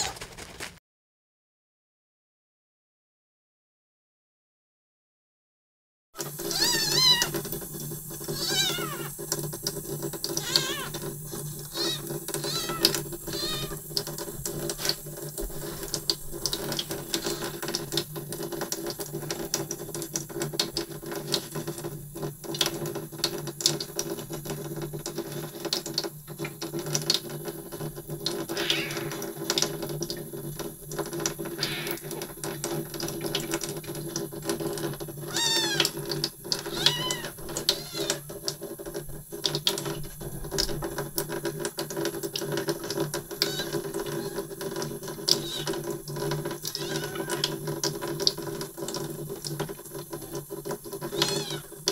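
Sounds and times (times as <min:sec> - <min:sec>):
kitten mewing: 0:06.2 - 0:07.4, 0:08.3 - 0:09.2, 0:10.4 - 0:11.1, 0:11.7 - 0:13.8, 0:28.5 - 0:29.3, 0:31.6 - 0:32.1, 0:35.2 - 0:35.9, 0:36.6 - 0:38.3, 0:43.4 - 0:44.5, 0:45.4 - 0:45.8, 0:46.8 - 0:47.6, 0:51.1 - 0:51.7
tap water running into sink: 0:06.2 - 0:51.9.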